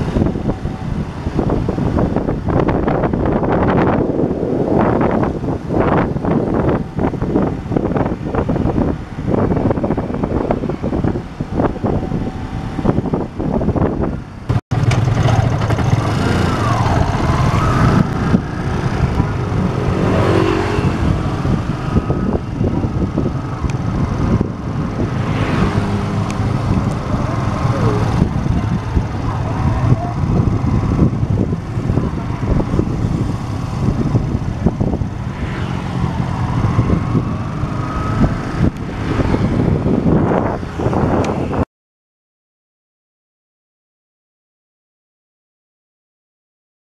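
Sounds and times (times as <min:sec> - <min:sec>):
passing traffic: 0:00.0 - 0:41.7
road and wind noise: 0:00.0 - 0:41.7
motorcycle engine running: 0:14.5 - 0:41.1.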